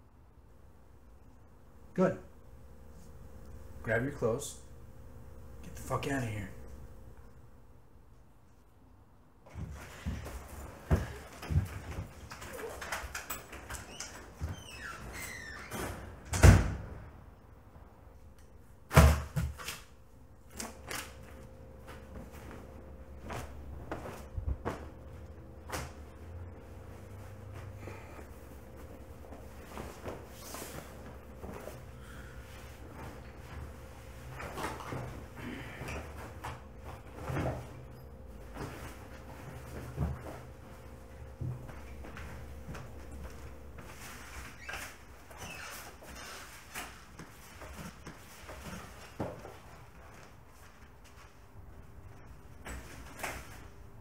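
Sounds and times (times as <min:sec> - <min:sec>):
faint steady hum: 0:00.0 - 0:54.0
door slamming shut: 0:15.7 - 0:17.0.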